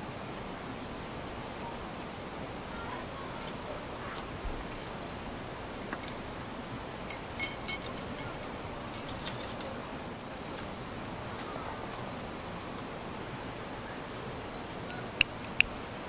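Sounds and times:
steady background hiss: 0.0 - 16.0
metal and glass parts clinking: 7.0 - 9.8.

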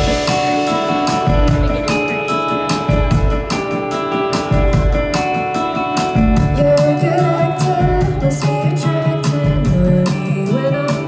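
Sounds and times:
rock band playing live: 0.0 - 11.0
woman singing lead vocal: 6.4 - 11.0.

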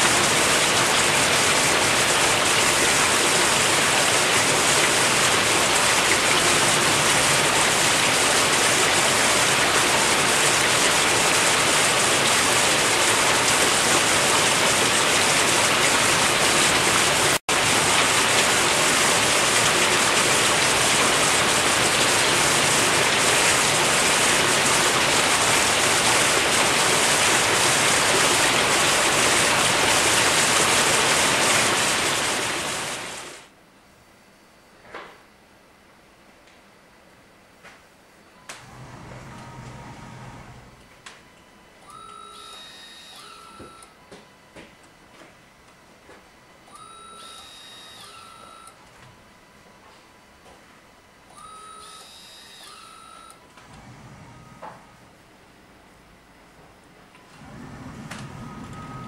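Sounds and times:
water rushing through tanks: 0.0 - 33.5, 38.6 - 40.8, 57.3 - 59.0.

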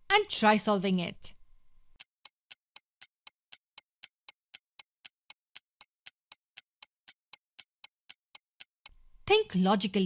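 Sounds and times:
clock ticking: 2.0 - 9.0.

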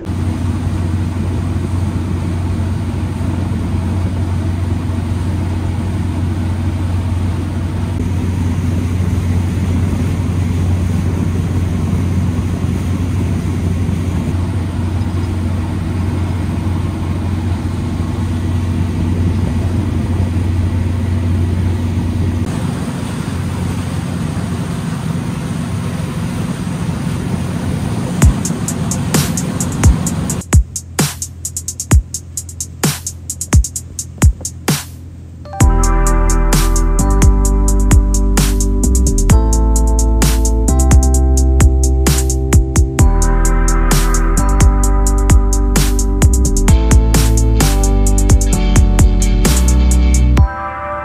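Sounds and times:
water rushing past hull: 0.0 - 30.5
motorboat engine droning: 0.0 - 50.8.

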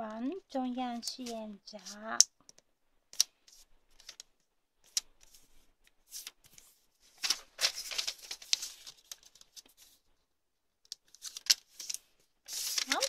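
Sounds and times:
paper rustling and crinkling: 1.0 - 2.0, 3.5 - 10.1, 10.9 - 13.0
sharp paper snap: 11.0 - 13.0.

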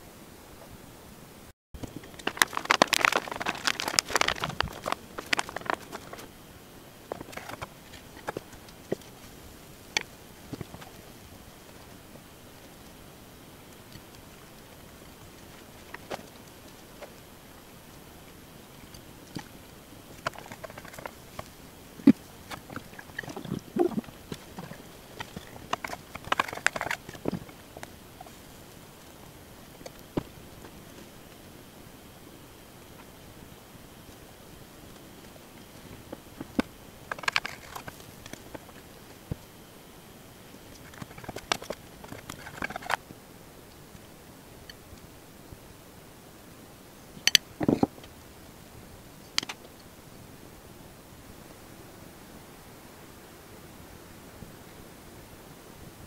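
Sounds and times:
batter crackling in frying pan: 1.8 - 6.3.

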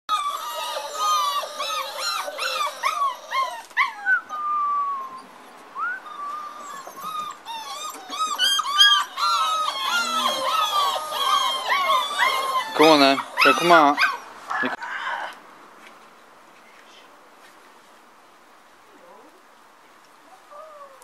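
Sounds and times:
puppies whining and yelping: 0.1 - 15.4.

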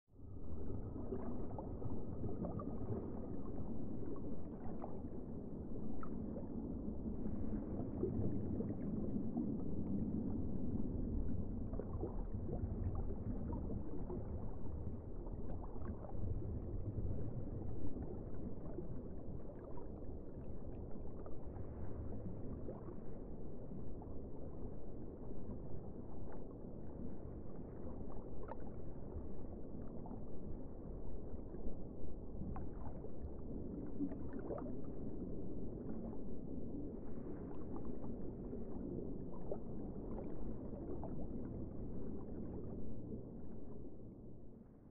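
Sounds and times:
underwater moving water rumble: 0.1 - 44.9.

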